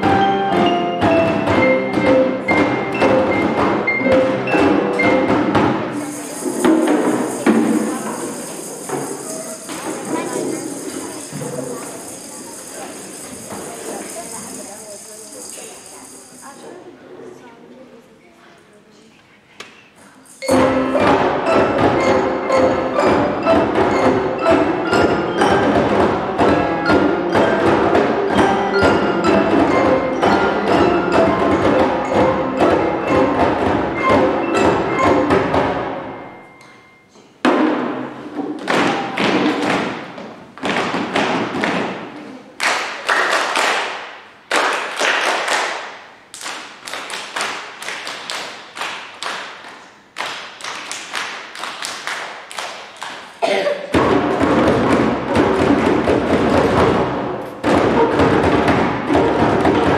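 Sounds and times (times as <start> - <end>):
children's percussion ensemble playing: 0.0 - 17.4, 20.2 - 59.9.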